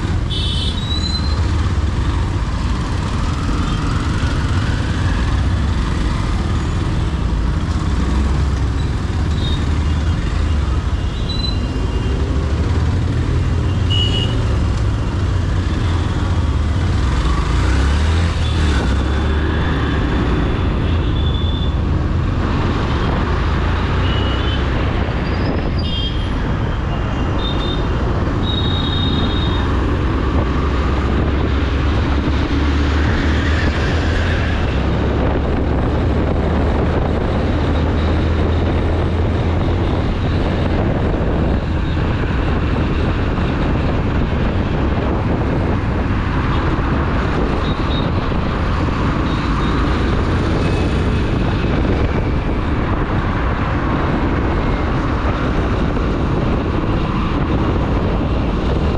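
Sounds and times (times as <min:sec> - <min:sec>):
road and traffic noise: 0:00.0 - 0:58.9
wind rumble on microphone: 0:29.5 - 0:58.9.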